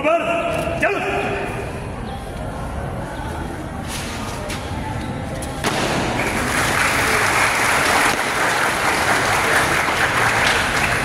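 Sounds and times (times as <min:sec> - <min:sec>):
crowd applauding: 0:06.1 - 0:11.0.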